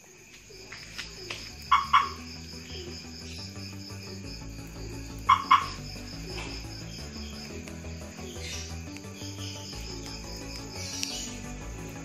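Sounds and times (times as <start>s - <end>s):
crickets chirping: 0.0s - 12.0s
car alarm chirping: 1.6s - 2.4s, 5.2s - 5.9s.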